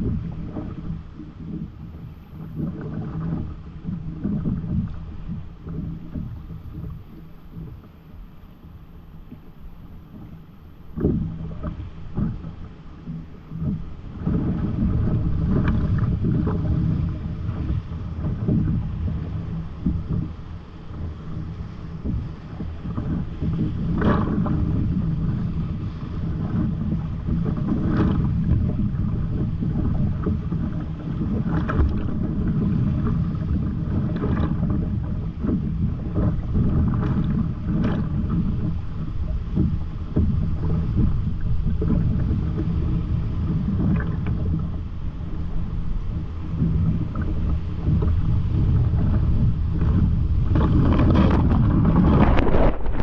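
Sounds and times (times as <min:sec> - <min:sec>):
paddle splashes: 0:00.0 - 0:53.0
waves breaking over boat: 0:00.0 - 0:53.0.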